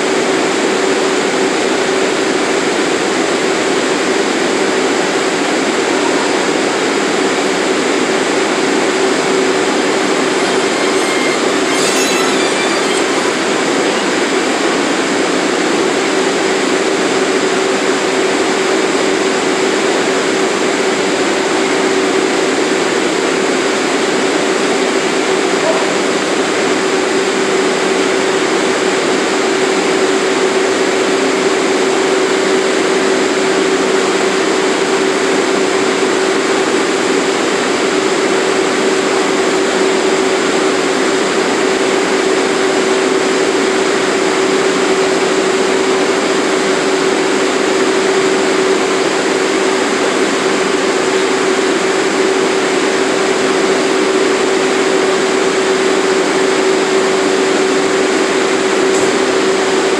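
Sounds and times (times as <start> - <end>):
subway car air-conditioning rushing: 0.0 - 59.9
constant hum tone: 5.5 - 21.5.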